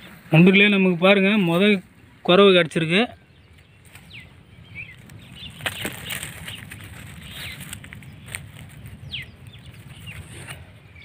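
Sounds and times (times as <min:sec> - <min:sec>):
fish flopping on gravel and leaves: 0:04.9 - 0:10.7.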